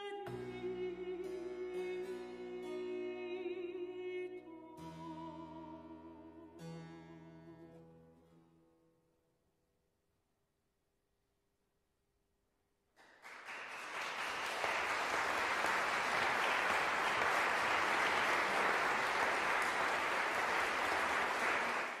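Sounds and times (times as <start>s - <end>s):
audience applause: 13.0s - 22.0s.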